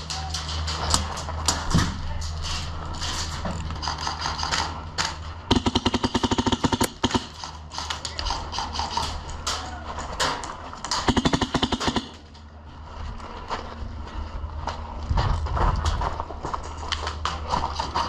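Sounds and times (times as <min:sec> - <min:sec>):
airsoft rifle firing full-auto: 0:05.5 - 0:07.3, 0:11.1 - 0:12.2.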